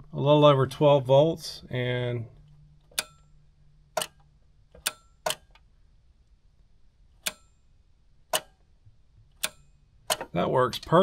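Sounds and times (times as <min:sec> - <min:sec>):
switch and relay clicks: 0:02.4 - 0:05.7, 0:07.1 - 0:07.6, 0:08.2 - 0:10.4.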